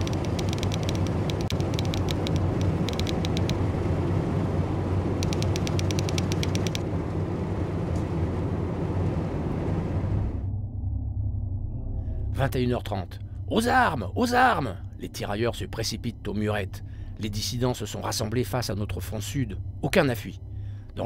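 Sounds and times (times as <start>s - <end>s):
car driving interior rumble: 0.0s - 10.5s.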